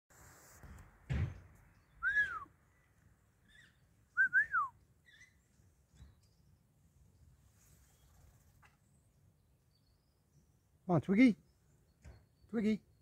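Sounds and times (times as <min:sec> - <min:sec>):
dull thump: 0:00.6 - 0:01.6
person whistling: 0:02.0 - 0:02.5, 0:04.2 - 0:04.7.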